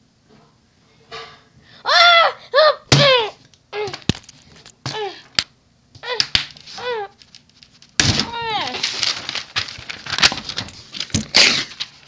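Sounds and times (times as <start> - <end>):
boy's frightened cries: 1.8 - 4.1, 6.0 - 7.2, 8.2 - 8.8.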